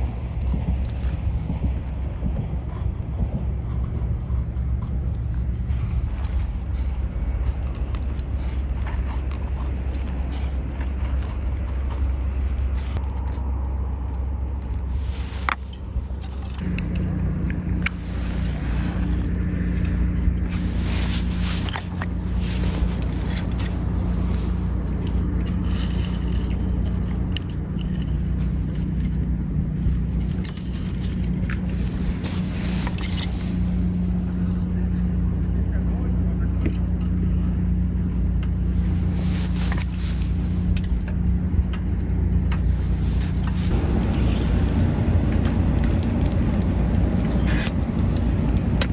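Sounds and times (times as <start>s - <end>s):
knife scraping wood: 0.0s - 34.4s, 38.4s - 48.9s
steady low rumble: 0.0s - 48.9s
small fire crackling: 38.7s - 48.9s.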